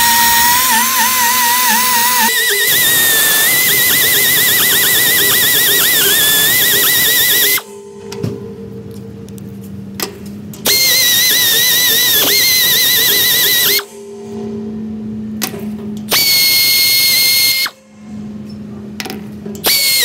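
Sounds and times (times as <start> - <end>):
power drill high-pitched whine: 0.0 - 7.7, 10.6 - 14.0, 16.1 - 17.8, 19.6 - 20.0.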